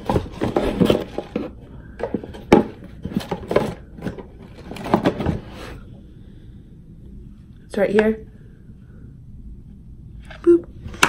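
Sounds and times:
rummaging in cardboard box: 0.0s - 5.8s.

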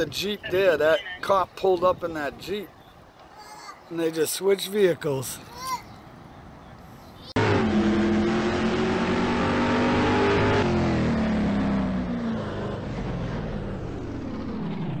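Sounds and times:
car engine revving down: 7.4s - 15.0s.

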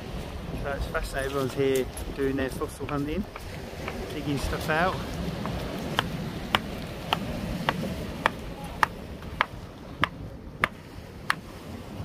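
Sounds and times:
hammer tapping on rock: 4.9s - 11.4s.

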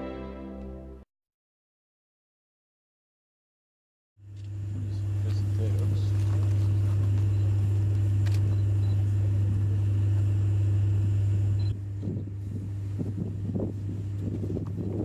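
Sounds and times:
low engine hum: 4.3s - 15.0s.

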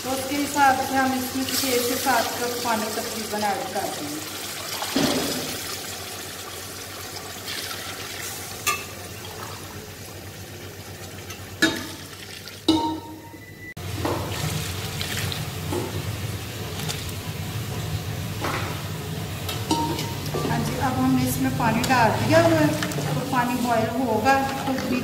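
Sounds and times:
water splashing into sizzling pot: 0.8s - 9.9s, 10.8s - 13.1s, 13.8s - 16.0s.

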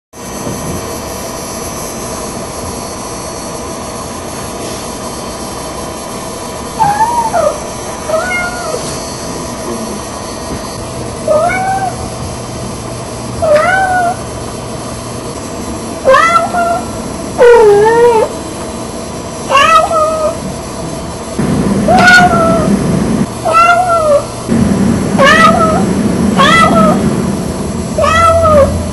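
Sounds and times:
cat meowing: 6.8s - 8.8s, 11.2s - 12.1s, 13.4s - 14.3s, 16.0s - 18.4s, 19.5s - 20.4s, 21.9s - 22.7s, 23.4s - 24.4s, 25.2s - 27.0s, 28.0s - 28.9s
steady hiss: 20.2s - 28.9s.

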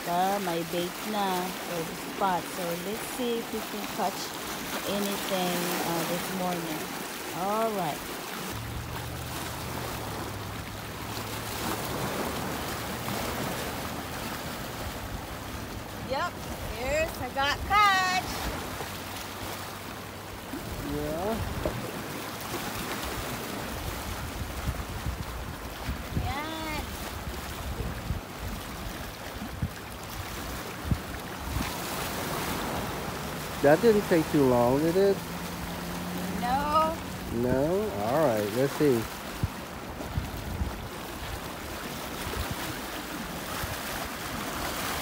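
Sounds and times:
small waves washing against rocks: 0.0s - 45.0s
wind on microphone: 20.5s - 22.1s, 23.0s - 33.3s, 39.2s - 45.0s.

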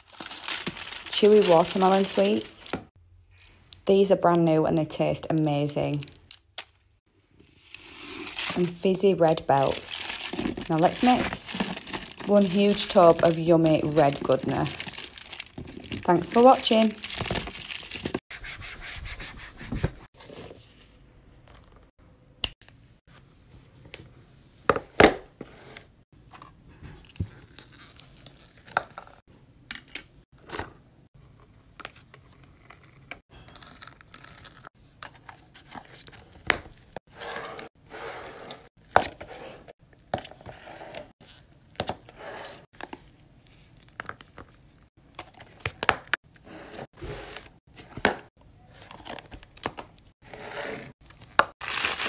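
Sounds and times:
gummy sweets rustling: 0.0s - 2.9s, 9.5s - 18.2s.

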